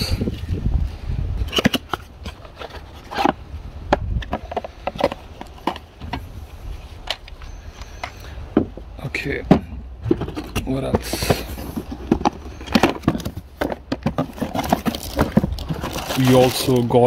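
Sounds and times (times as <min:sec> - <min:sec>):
plastic parts knocking in a box: 0:09.4 - 0:16.9.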